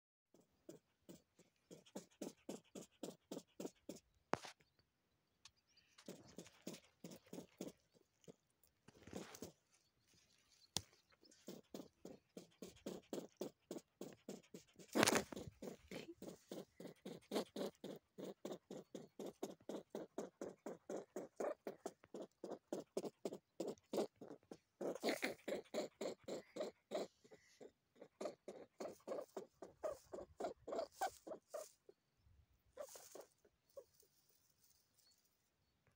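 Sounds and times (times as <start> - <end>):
rustling: 6.0 - 17.5, 32.7 - 35.6
young hare grunting: 11.4 - 31.9.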